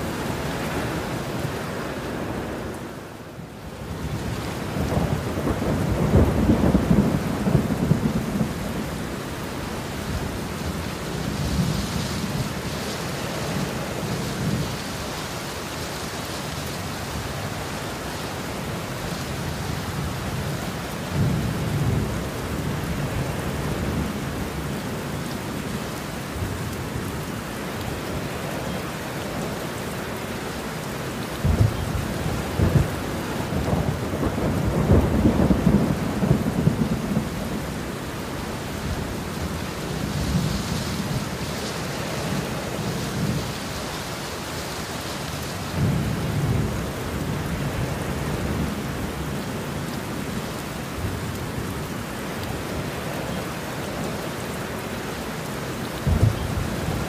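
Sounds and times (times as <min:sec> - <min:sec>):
heavy rain falling: 0:00.0 - 0:57.0
rolling thunder: 0:04.2 - 0:08.9, 0:31.4 - 0:37.8, 0:56.0 - 0:57.0.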